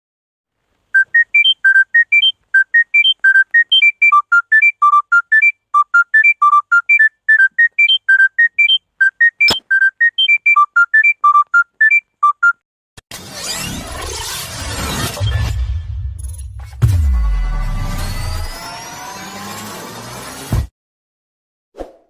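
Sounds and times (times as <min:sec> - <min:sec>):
phone ringtone beeping melody: 0:01.0 - 0:12.6
sharp click: 0:09.4 - 0:09.7.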